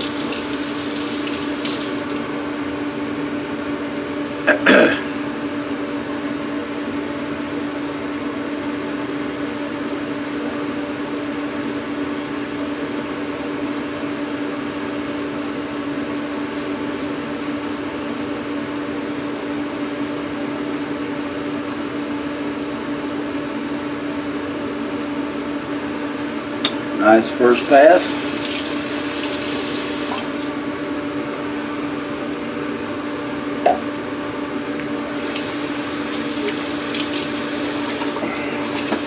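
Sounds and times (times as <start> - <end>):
loud steady fan hum: 0.0 - 39.0.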